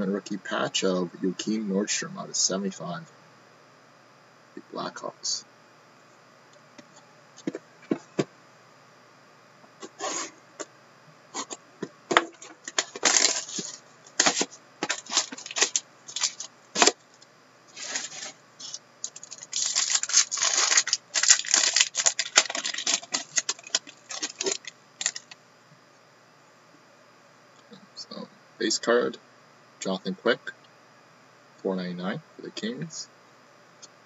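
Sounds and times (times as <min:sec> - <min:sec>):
plastic wrap crinkling and tearing: 0:12.7 - 0:17.0, 0:17.7 - 0:25.4.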